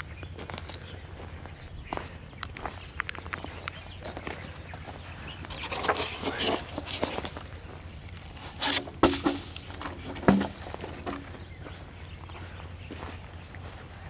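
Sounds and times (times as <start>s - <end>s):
footsteps crunching on shelly sand: 0.0s - 14.0s
sharp knocks: 9.0s - 11.2s.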